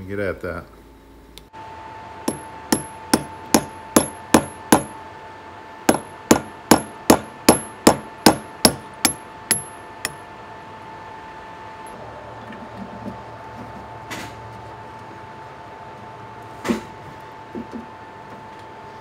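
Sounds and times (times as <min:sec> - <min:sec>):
hammer striking metal bolt: 0:02.3 - 0:05.0, 0:05.9 - 0:10.2.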